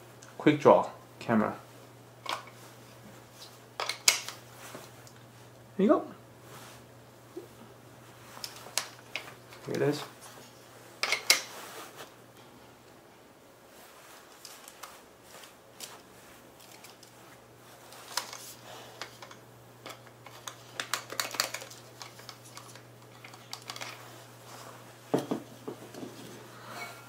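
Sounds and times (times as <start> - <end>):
plastic clicks and rattles: 19.0 - 24.0.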